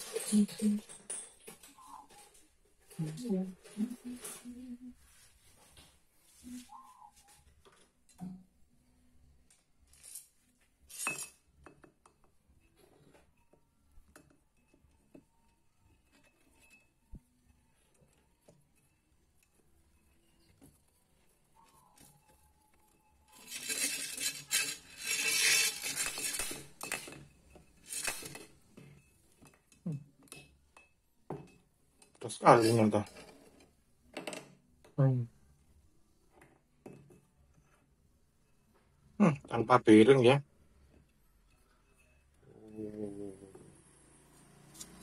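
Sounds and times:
metal tools clinking on metal: 0.0s - 2.3s, 10.0s - 11.5s, 23.3s - 33.4s.

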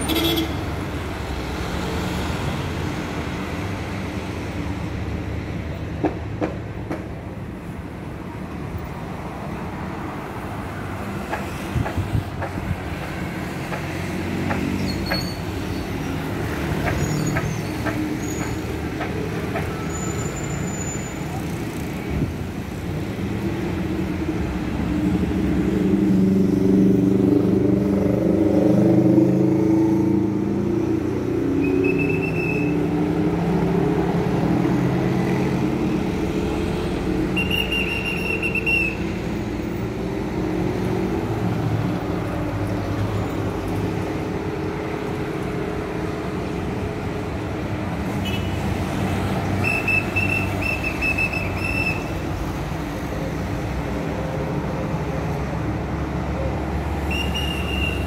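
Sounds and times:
vehicles passing on road: 0.0s - 58.0s
high whistle-like tone: 31.6s - 32.7s, 57.1s - 58.0s.

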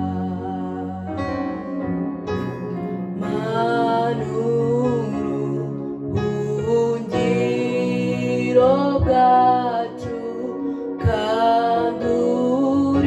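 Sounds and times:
electronic keyboard chords: 0.0s - 13.0s
woman singing into microphone: 3.2s - 13.0s.

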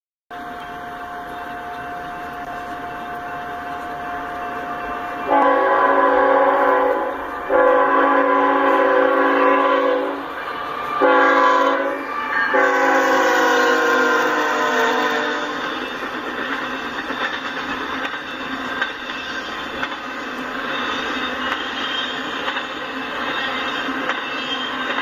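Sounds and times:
steady high tone: 0.3s - 17.1s
approaching train rumble: 0.3s - 25.0s
locomotive air horn: 5.2s - 15.7s.

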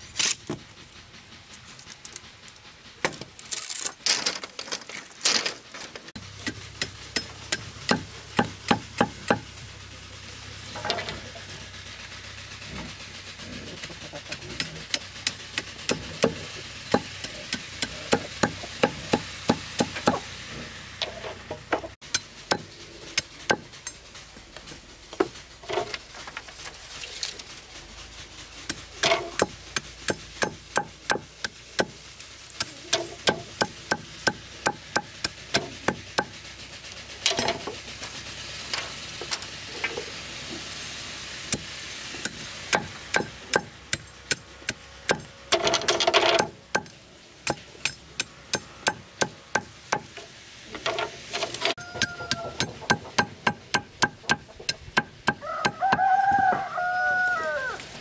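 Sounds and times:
knife chopping bamboo on wood: 6.4s - 9.4s, 28.7s - 32.0s, 41.6s - 45.3s, 47.5s - 50.2s, 51.4s - 56.6s.

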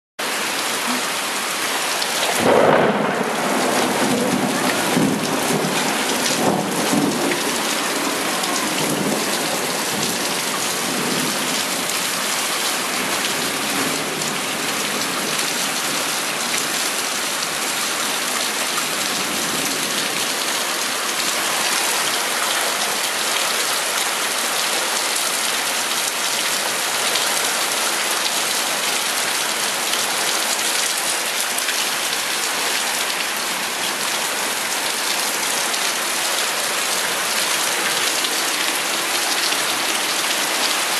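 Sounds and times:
heavy rain pouring: 0.2s - 40.9s
low thunder rumble: 2.4s - 10.3s.

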